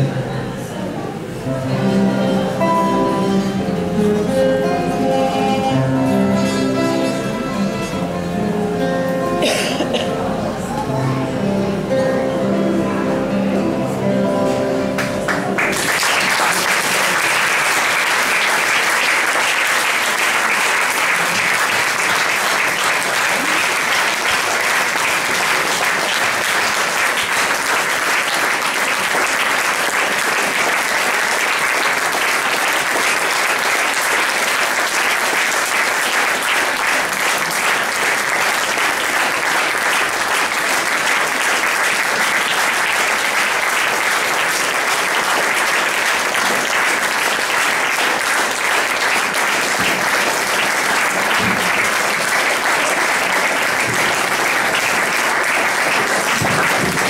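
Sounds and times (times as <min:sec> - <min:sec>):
audience applauding: 0:15.0 - 0:57.0.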